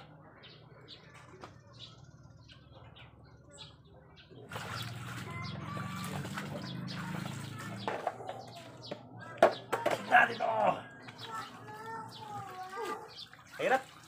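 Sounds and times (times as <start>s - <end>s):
water sloshing and splashing: 4.4s - 8.9s, 11.2s - 14.0s.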